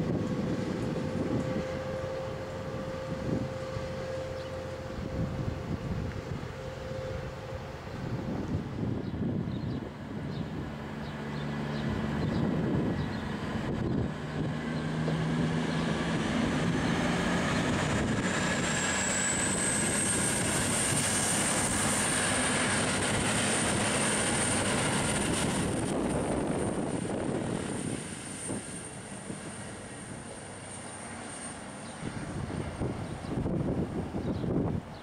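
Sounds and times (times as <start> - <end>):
wheels on rail: 0.0 - 8.8
diesel engines droning: 0.0 - 35.0.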